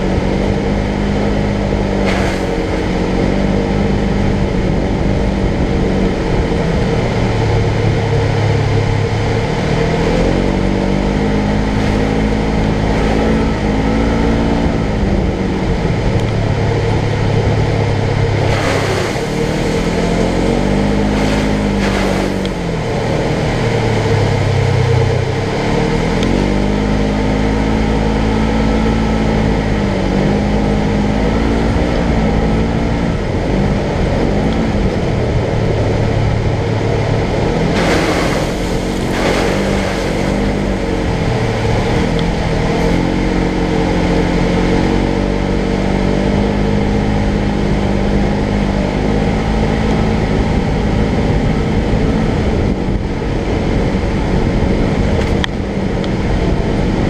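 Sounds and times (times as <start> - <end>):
off-road vehicle engine: 0.0 - 57.0
rush of thrown-up mud: 2.0 - 2.8, 18.4 - 22.9, 37.6 - 42.8.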